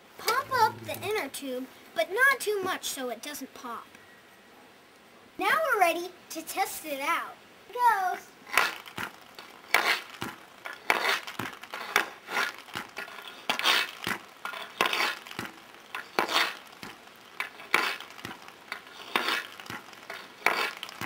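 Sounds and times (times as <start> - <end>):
hockey puck clacking and scraping: 0.2 - 1.2, 8.5 - 21.0.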